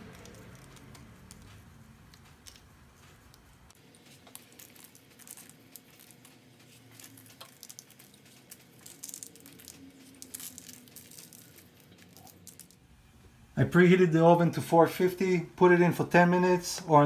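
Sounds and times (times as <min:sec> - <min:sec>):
salt grains ticking on dough: 0:00.0 - 0:12.8.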